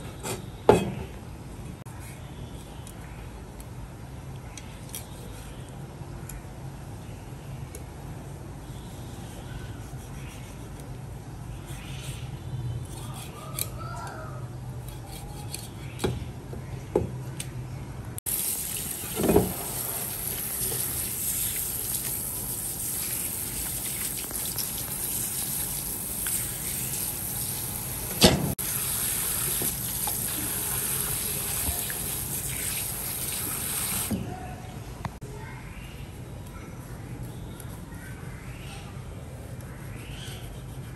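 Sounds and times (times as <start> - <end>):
water running from a tap: 18.3 - 34.1.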